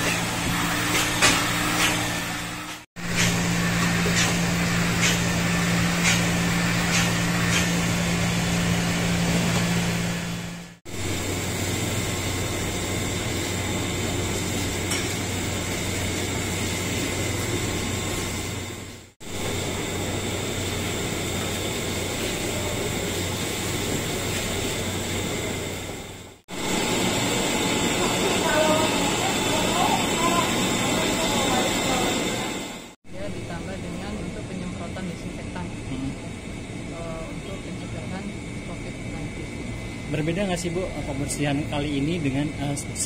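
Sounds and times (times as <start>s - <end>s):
water hoses spraying: 3.0s - 10.0s.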